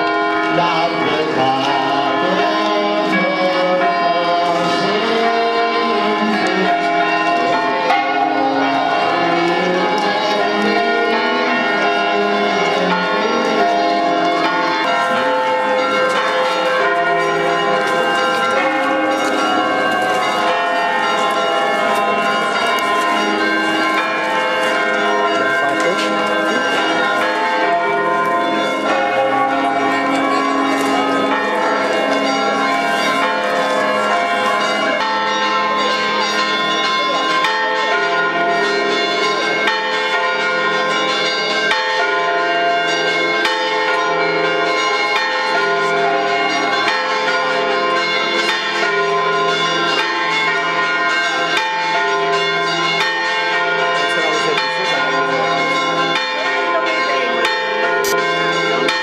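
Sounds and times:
church bells pealing: 0:00.0 - 0:59.0.

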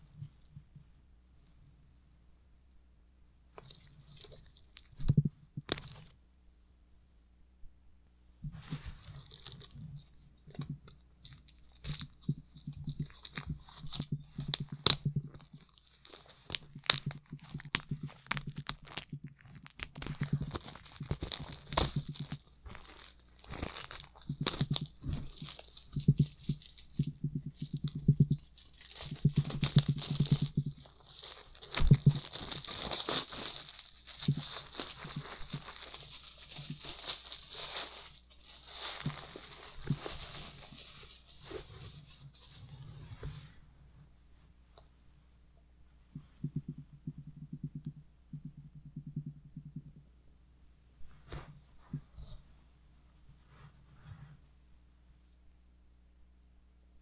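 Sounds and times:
shrink-wrap crinkling and tearing: 0:03.6 - 0:06.1, 0:08.7 - 0:42.2
hands handling a book: 0:03.6 - 0:06.2, 0:08.4 - 0:43.4.

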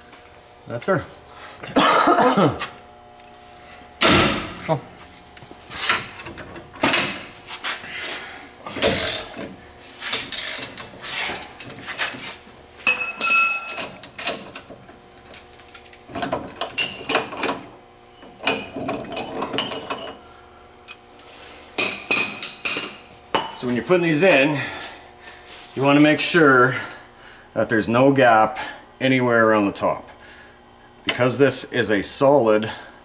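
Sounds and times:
metal tools clanking and rattling: 0:05.8 - 0:07.3, 0:08.6 - 0:09.5, 0:12.8 - 0:20.3, 0:21.8 - 0:24.7
ringing metallic clink: 0:12.9 - 0:13.8.

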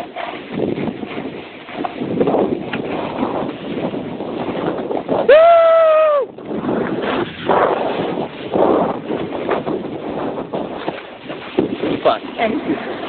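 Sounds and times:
snowboard scraping icy snow: 0:00.0 - 0:05.3, 0:06.4 - 0:13.0
wind on microphone: 0:00.0 - 0:13.0
person whooping: 0:05.3 - 0:06.3.

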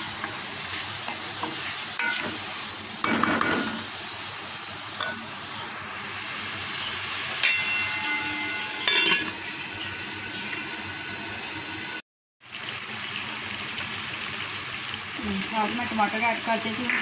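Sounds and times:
filling sizzling in a pan: 0:00.0 - 0:17.0
metal lid clinking on pan: 0:05.0 - 0:05.2, 0:07.4 - 0:09.4.

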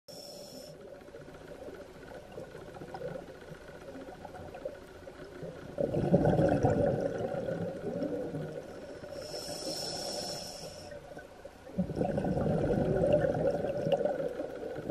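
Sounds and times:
diver breathing through regulator: 0:00.1 - 0:00.8, 0:08.8 - 0:11.0
exhaled bubbles gurgling: 0:05.4 - 0:14.9.

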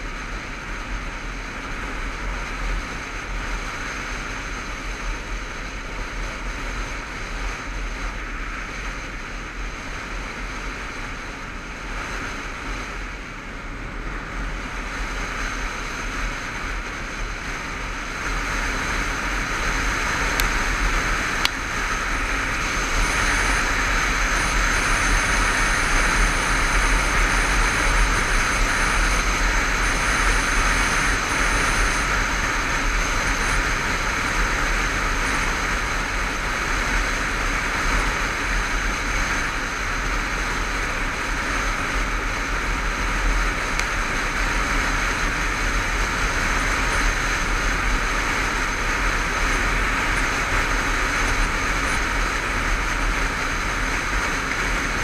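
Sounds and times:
motorcycle engine: 0:00.0 - 0:55.0
wind and road noise: 0:00.0 - 0:55.0.

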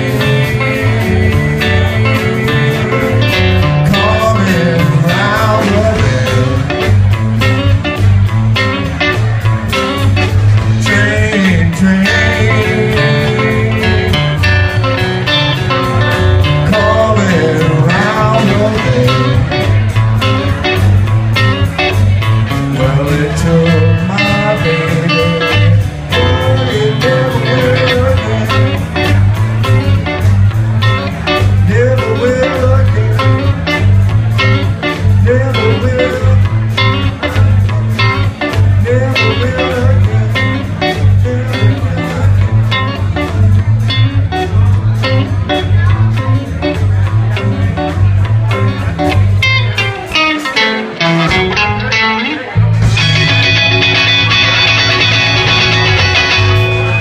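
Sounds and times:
man singing: 0:00.0 - 0:07.7, 0:10.6 - 0:15.0, 0:15.8 - 0:20.0, 0:22.5 - 0:30.0, 0:31.4 - 0:43.3
drums beating: 0:00.0 - 0:57.0
electric bass: 0:00.0 - 0:57.0
electric guitar: 0:00.0 - 0:57.0.

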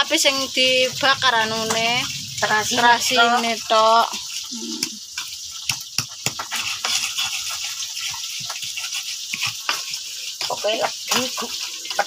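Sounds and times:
pestle grinding in a mortar: 0:04.2 - 0:12.0.

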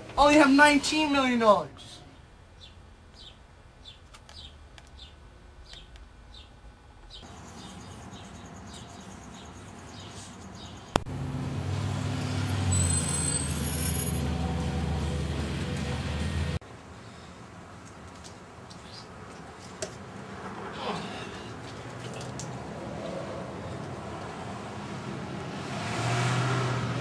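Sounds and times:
vehicle engine running: 0:13.5 - 0:16.6.

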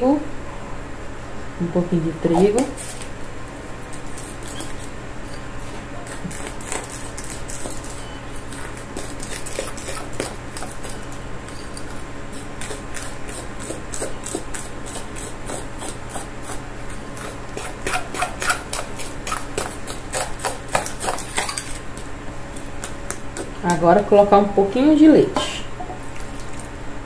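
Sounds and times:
utensil scraping batter in bowl: 0:03.9 - 0:23.6.

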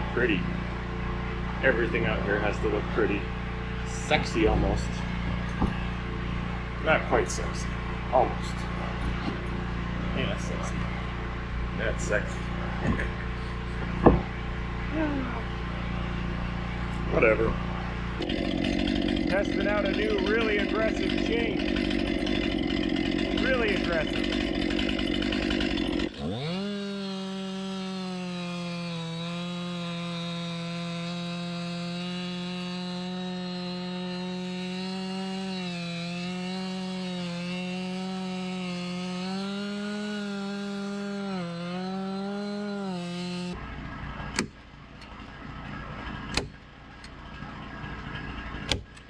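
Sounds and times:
chainsaw cutting log: 0:00.0 - 0:43.6
sharp knocks: 0:14.0 - 0:14.3.

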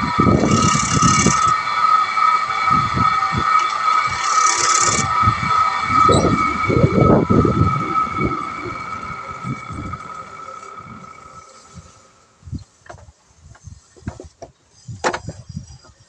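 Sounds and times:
wood lathe whining: 0:00.0 - 0:12.3.

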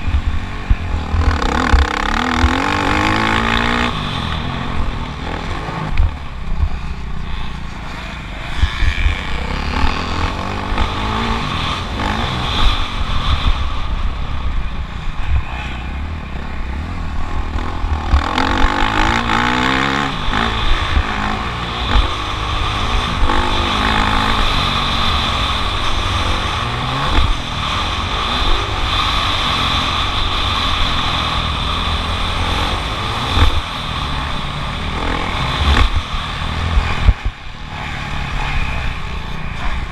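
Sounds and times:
motocross bike engine revving: 0:00.0 - 0:39.9.

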